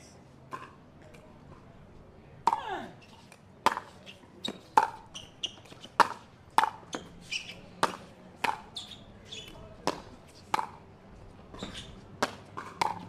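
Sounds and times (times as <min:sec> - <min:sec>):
paddles hitting plastic ball: 0:12.2 - 0:13.0.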